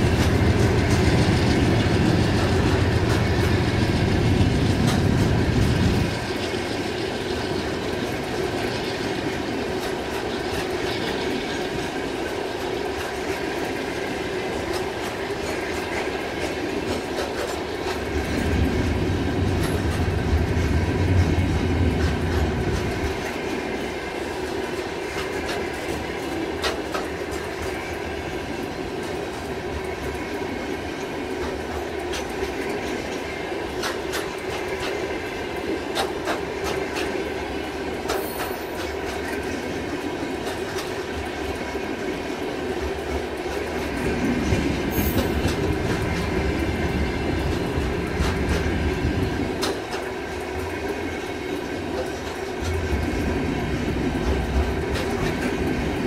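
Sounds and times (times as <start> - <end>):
train wheels on rails: 0.0 - 56.0
clicks over rail joints: 24.5 - 27.8, 31.4 - 37.2, 42.8 - 53.3.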